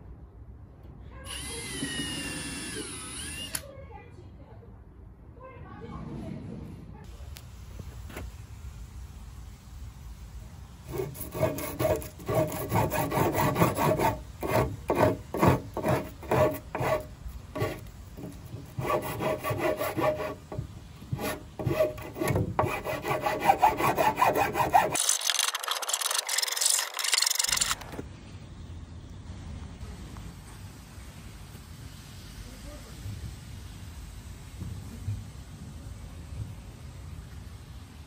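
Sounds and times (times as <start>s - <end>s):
metal file rasping on wood: 10.9s - 27.8s.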